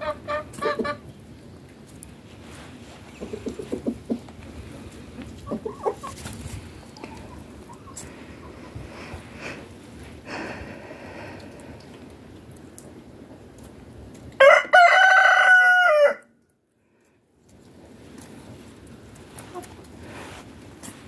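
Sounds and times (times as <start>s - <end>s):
faint yard sounds: 0.0s - 21.0s
rooster crowing: 14.4s - 16.3s.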